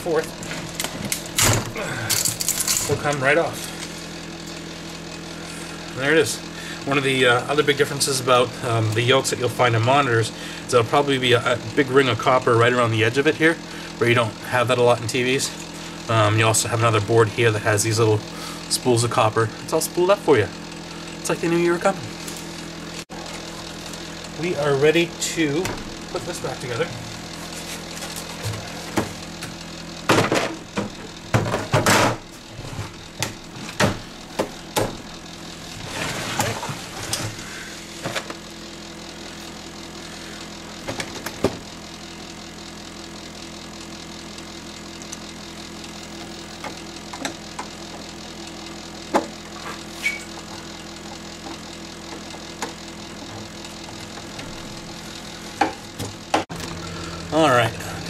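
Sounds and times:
steady low hum: 0.0s - 58.0s.

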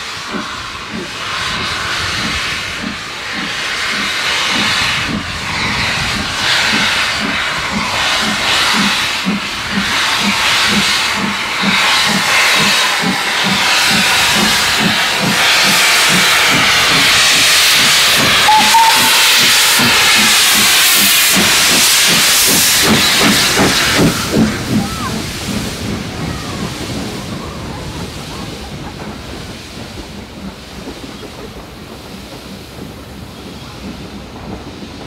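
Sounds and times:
loud steam hiss: 0.0s - 35.0s
steam locomotive exhaust beats: 0.0s - 35.0s.

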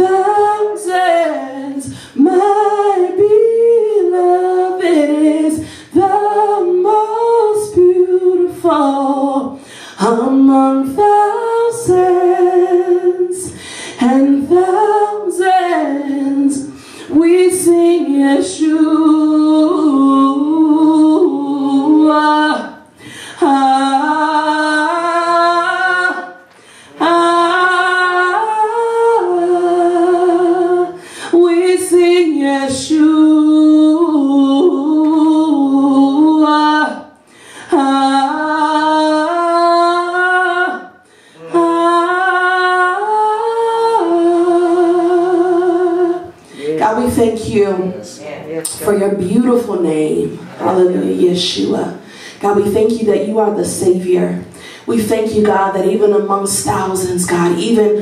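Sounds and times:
singer breathing: 1.9s - 2.2s, 5.6s - 5.9s, 9.6s - 10.0s, 13.5s - 14.0s, 16.7s - 17.1s, 22.9s - 23.4s, 26.5s - 27.0s, 30.9s - 31.3s, 37.2s - 37.7s, 41.0s - 41.6s, 52.0s - 52.4s, 54.5s - 54.9s.

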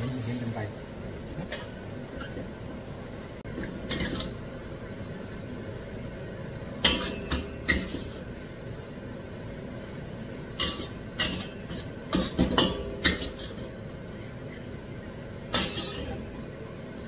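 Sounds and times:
steady low hum: 0.0s - 17.0s
ladle scraping a steel wok: 10.6s - 13.8s, 15.6s - 16.2s.

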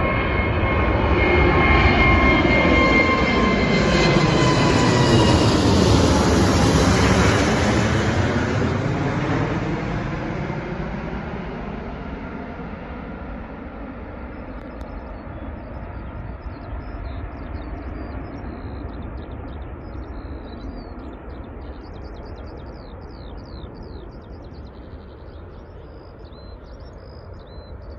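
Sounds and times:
jet engine rumble: 0.0s - 27.9s
small birds chirping: 14.3s - 27.9s.

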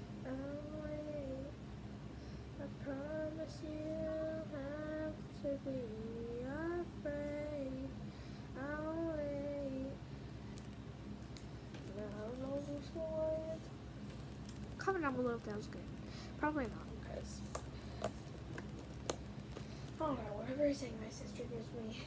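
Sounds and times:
girl singing unaccompanied: 0.0s - 1.6s, 2.6s - 10.0s, 11.8s - 13.8s.

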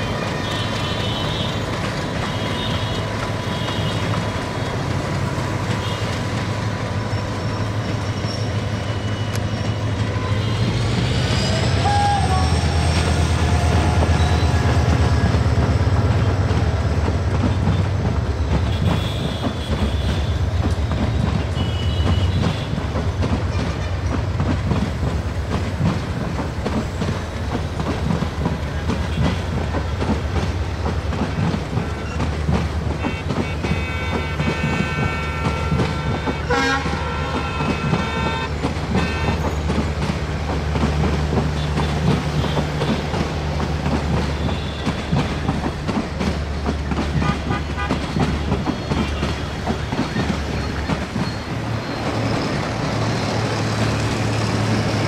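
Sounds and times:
locomotive engine drone: 0.0s - 55.0s
train wheels clattering over rail joints: 0.0s - 55.0s.

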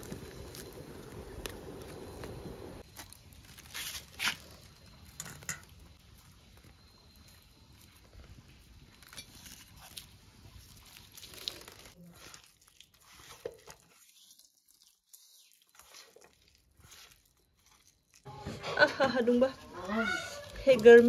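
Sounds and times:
hands mixing vegetables in bowl: 9.4s - 21.0s.

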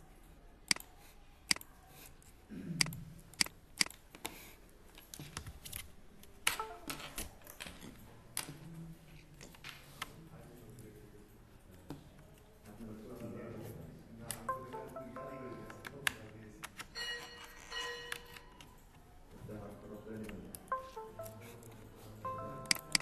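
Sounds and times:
computer mouse clicking: 0.7s - 0.9s, 1.5s - 1.7s, 22.7s - 23.0s.

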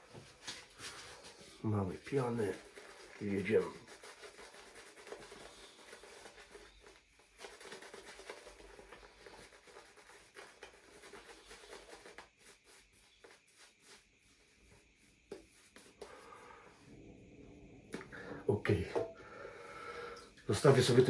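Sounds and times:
shaving brush scrubbing: 0.7s - 16.4s.

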